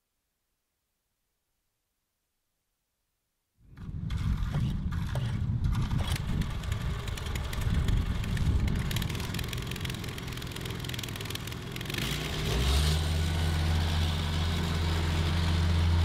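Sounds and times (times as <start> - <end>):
small diesel engine clattering: 3.8 - 16.0.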